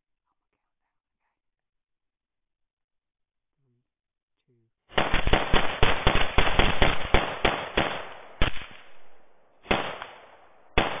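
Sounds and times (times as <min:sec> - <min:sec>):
rifle shots: 0:04.9 - 0:11.0.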